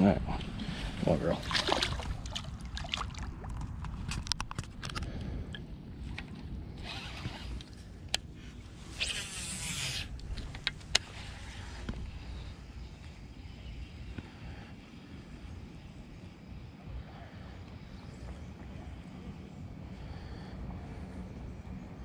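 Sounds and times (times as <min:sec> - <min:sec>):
line zipping off reel: 0:06.8 - 0:07.8, 0:08.9 - 0:10.2.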